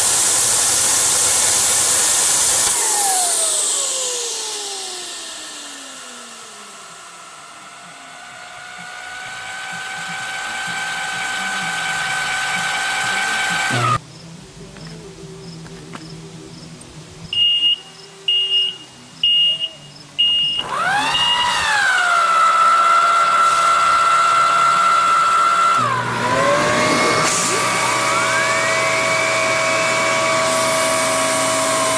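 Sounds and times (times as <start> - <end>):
gas turbine high whine: 0.0 - 31.9
short high beeps: 17.4 - 21.4.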